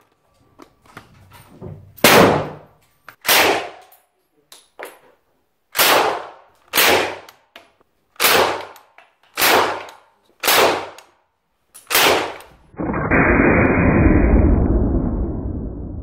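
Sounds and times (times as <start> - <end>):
single gunshots: 2.0 - 2.7, 3.3 - 3.8, 11.9 - 14.2
loud low rushing noise: 12.6 - 16.0.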